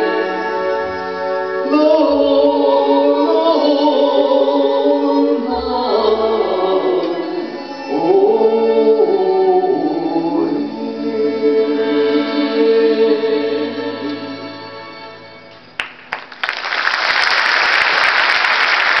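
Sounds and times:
audience applause: 15.8 - 19.0.

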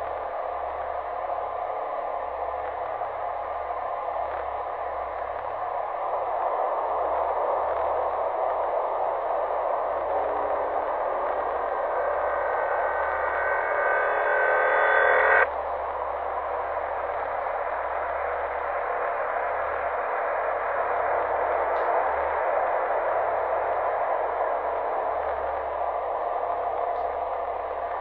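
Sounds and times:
static-like hiss: 0.0 - 28.0
low hum: 7.8 - 23.7
high ringing tones: 11.2 - 15.5.

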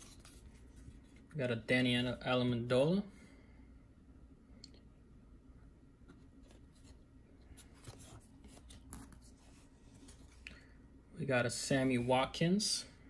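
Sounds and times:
trading cards rustling: 0.0 - 1.4.

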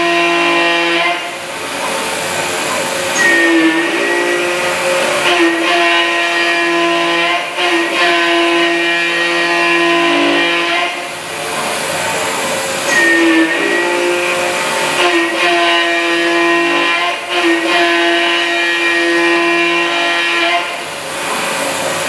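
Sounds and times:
milling machine whine: 0.0 - 22.0
rough metal cutting noise: 0.0 - 22.0
brief high tone: 3.2 - 6.8, 12.9 - 16.1.

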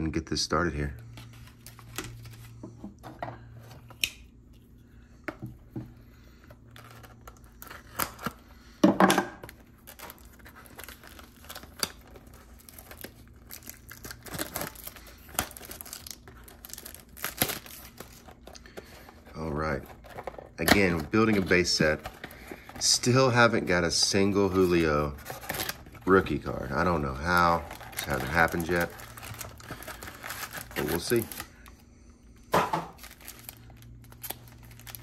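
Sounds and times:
card packaging tearing and crinkling: 6.7 - 8.6, 9.4 - 31.7, 32.9 - 35.0.

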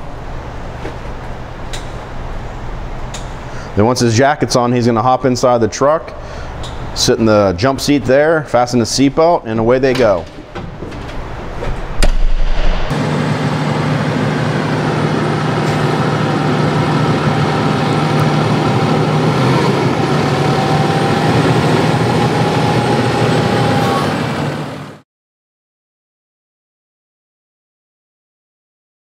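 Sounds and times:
sharp knocks: 11.7 - 12.9
diesel truck engine running: 13.0 - 25.0.

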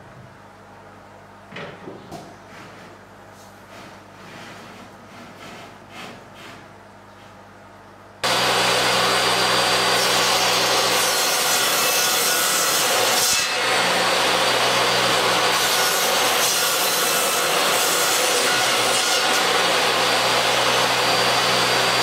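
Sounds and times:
table saw cutting board: 8.2 - 22.0.

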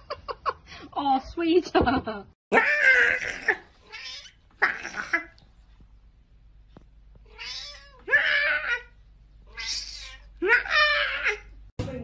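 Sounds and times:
cat meowing: 2.6 - 5.2, 7.3 - 8.9, 9.5 - 11.5.

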